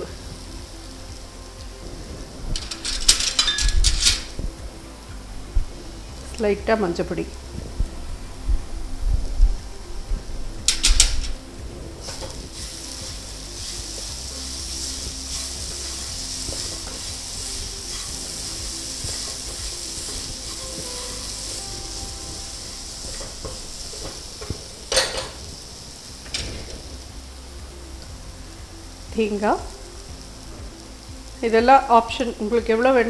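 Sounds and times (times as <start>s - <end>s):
food sizzling in a frying pan: 0.0s - 33.0s.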